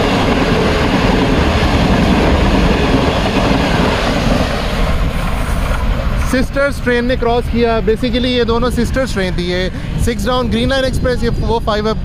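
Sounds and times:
train wheels rushing on rails: 0:00.0 - 0:12.0.

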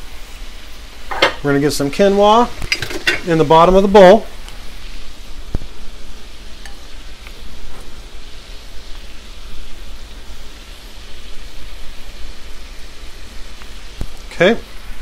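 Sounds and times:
chicken sizzling in oil: 0:00.0 - 0:15.0.

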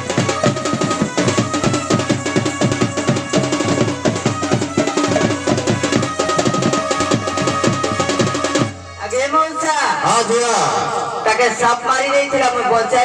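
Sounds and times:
barrel drums beating fast: 0:00.0 - 0:08.8
held melody line: 0:00.0 - 0:09.6.

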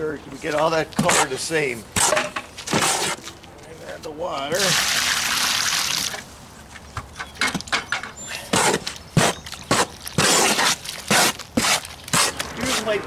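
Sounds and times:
hoe mixing wet mortar: 0:00.5 - 0:03.4, 0:07.6 - 0:13.0.

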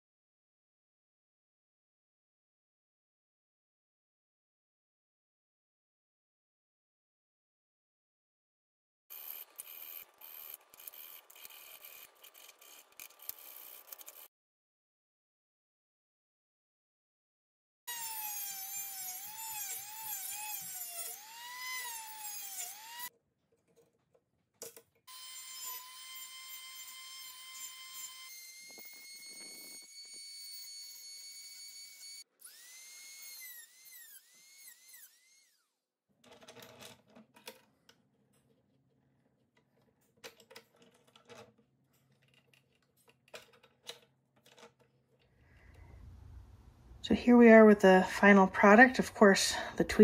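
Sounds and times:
rotary tool grinding metal: 0:09.1 - 0:14.3, 0:17.9 - 0:23.1, 0:25.1 - 0:37.1.

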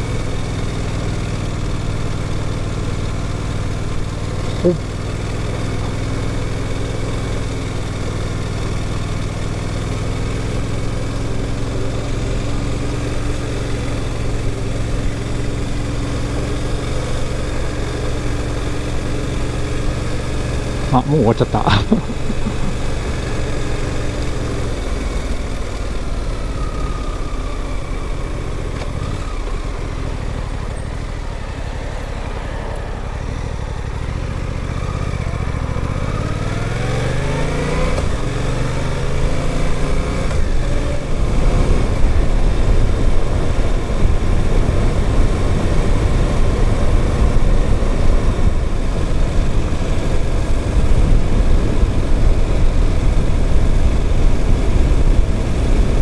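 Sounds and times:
motorcycle engine: 0:00.0 - 0:56.0
wind and road noise: 0:00.0 - 0:56.0.

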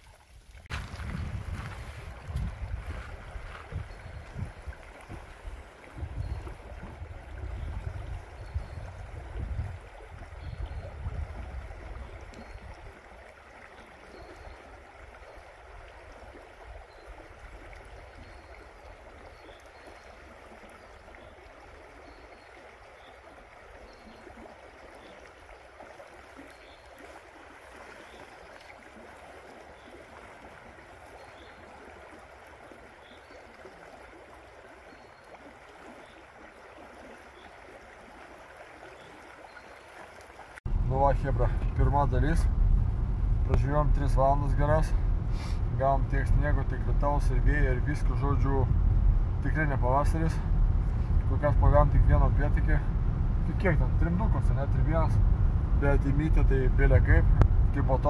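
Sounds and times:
stream rushing over gravel: 0:00.0 - 0:58.0
wind buffeting microphone: 0:00.7 - 0:12.9, 0:40.6 - 0:58.0.

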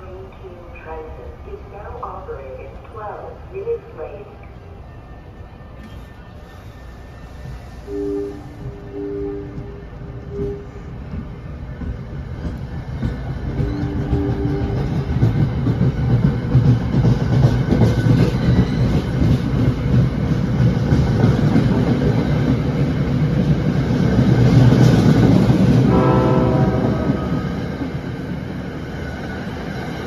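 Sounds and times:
train coaches rumbling past: 0:00.0 - 0:30.0
train horn tone: 0:07.9 - 0:10.9, 0:13.7 - 0:15.0, 0:25.8 - 0:27.9.

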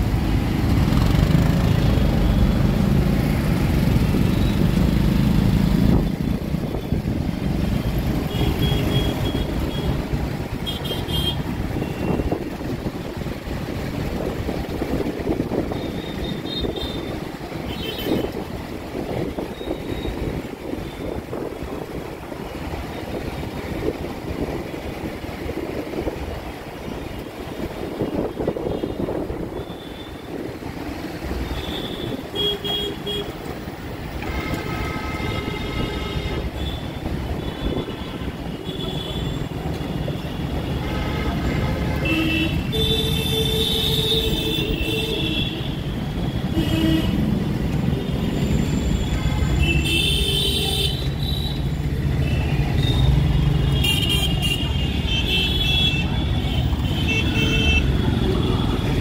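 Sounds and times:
vehicle horns honking: 0:08.2 - 0:10.0, 0:10.6 - 0:12.4, 0:31.5 - 0:33.4, 0:34.2 - 0:39.5, 0:40.4 - 0:47.4, 0:48.0 - 0:51.7, 0:52.3 - 0:59.0
wind rush on microphone: 0:11.4 - 0:17.3, 0:18.0 - 0:30.8.

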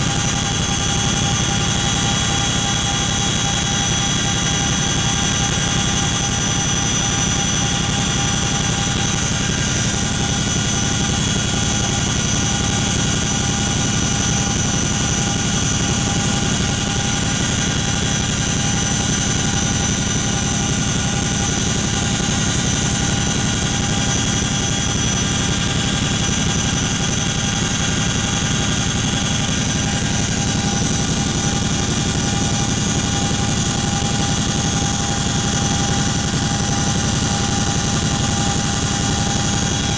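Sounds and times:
helicopter cabin rumble: 0:28.8 - 0:35.3.

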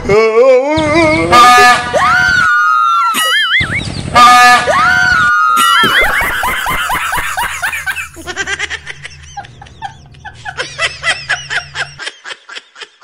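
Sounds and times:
high-pitched rapid laughter: 0:05.6 - 0:13.0
low steady hum: 0:05.8 - 0:12.0.

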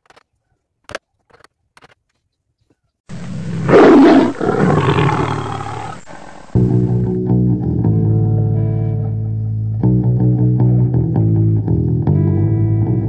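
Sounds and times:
recorded lion roar: 0:03.1 - 0:06.6.

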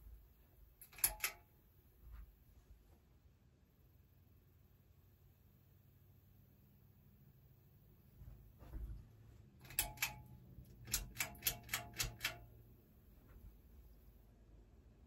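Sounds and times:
sharp plastic clicks: 0:00.8 - 0:01.5, 0:09.6 - 0:12.6.

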